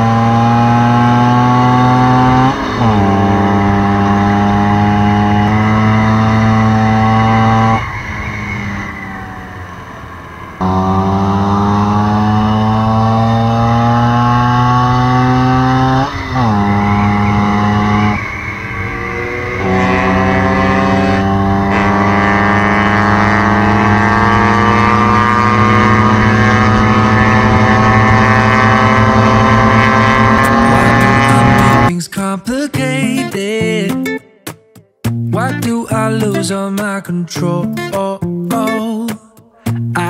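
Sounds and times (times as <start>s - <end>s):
scooter engine accelerating: 0.0s - 31.9s
wind and road noise: 0.0s - 31.9s.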